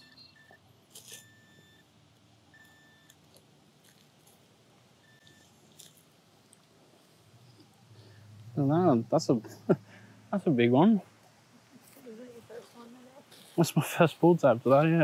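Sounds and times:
pinpointer beeps: 0:00.0 - 0:00.6
scratching of soil: 0:00.9 - 0:01.4, 0:11.8 - 0:15.0.

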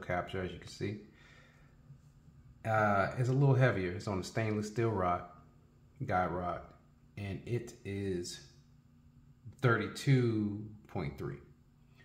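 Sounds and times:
man talking: 0:00.0 - 0:01.1, 0:02.6 - 0:05.4, 0:06.0 - 0:08.6, 0:09.5 - 0:11.6.

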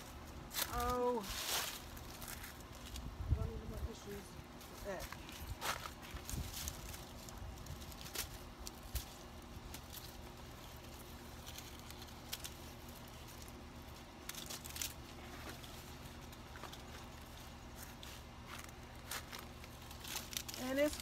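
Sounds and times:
leaves rustling: 0:00.0 - 0:21.0
low background rumble: 0:00.0 - 0:21.0
pruning shears snipping: 0:06.2 - 0:21.0.

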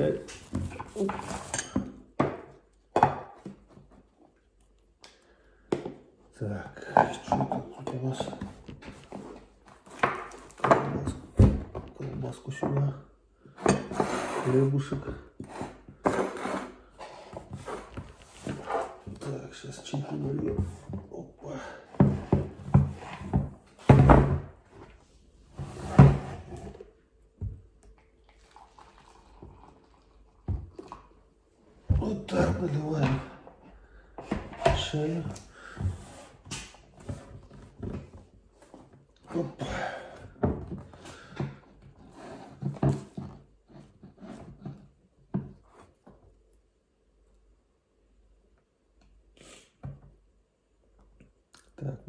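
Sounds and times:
water pouring into mug: 0:28.2 - 0:31.1.

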